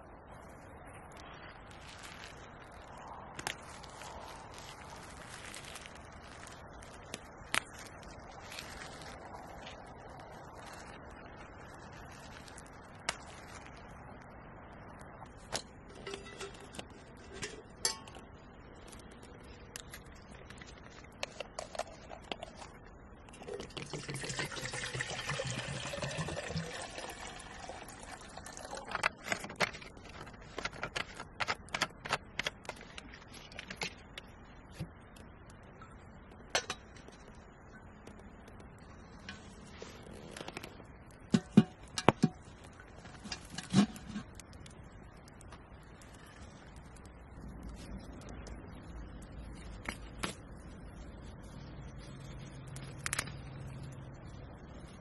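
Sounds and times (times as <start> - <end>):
water pouring into metal kettle: 23.4 - 29.1
scissors snipping twigs: 52.0 - 53.8.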